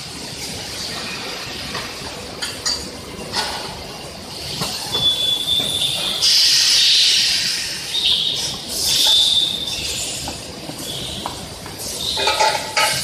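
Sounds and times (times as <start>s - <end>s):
steady high squeal: 4.3s - 12.8s
loud hiss: 4.4s - 11.1s
metal parts clattering on conveyor: 12.0s - 13.0s.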